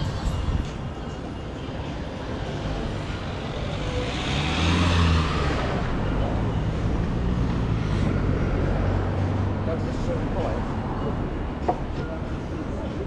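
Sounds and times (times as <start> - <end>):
street traffic rumbling: 0.0 - 13.0
vehicle engine passing by: 3.4 - 10.2.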